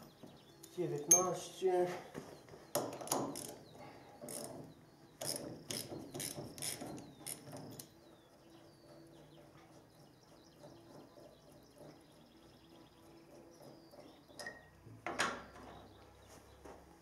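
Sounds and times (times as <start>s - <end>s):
ratchet wrench clicking: 5.2s - 7.5s.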